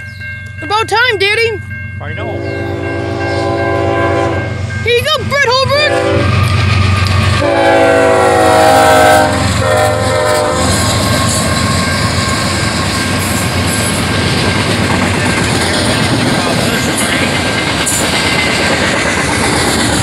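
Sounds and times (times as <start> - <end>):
diesel locomotive engines rumbling: 0.0 - 20.0
locomotive horn: 2.3 - 4.6, 5.7 - 6.6, 7.3 - 11.9
freight cars clattering on rails: 10.8 - 20.0.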